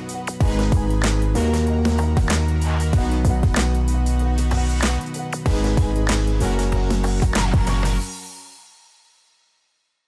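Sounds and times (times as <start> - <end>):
background music with drum hits: 0.1 - 8.5
sustained bass notes: 0.4 - 8.0.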